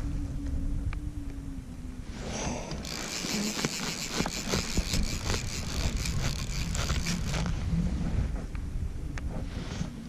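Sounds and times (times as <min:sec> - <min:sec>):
fishing reel drag ratcheting: 0:02.8 - 0:07.6.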